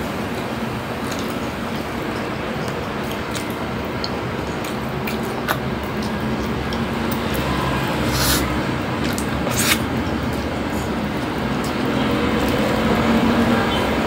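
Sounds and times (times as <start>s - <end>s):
person chewing: 2.6s - 11.8s.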